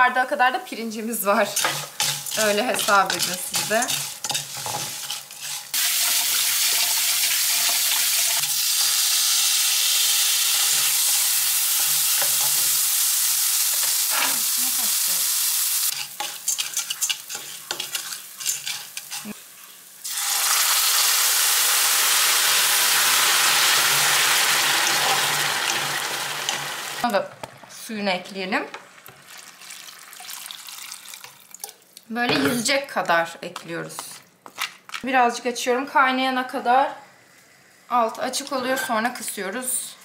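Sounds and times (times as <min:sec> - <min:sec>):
pasta and rice sizzling in oil: 0:01.1 - 0:27.2
wooden spatula scraping a pan: 0:01.4 - 0:06.2, 0:15.9 - 0:19.8.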